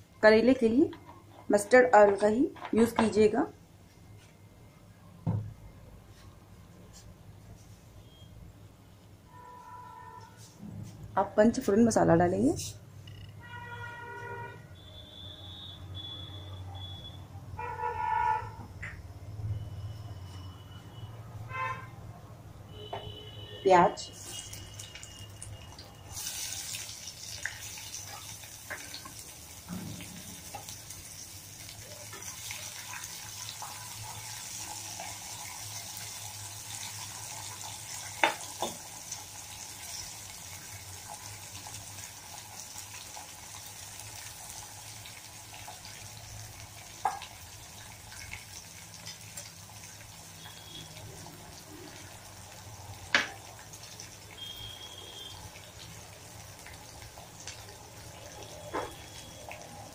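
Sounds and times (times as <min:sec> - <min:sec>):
onions sizzling in oil: 0:24.0 - 0:59.9.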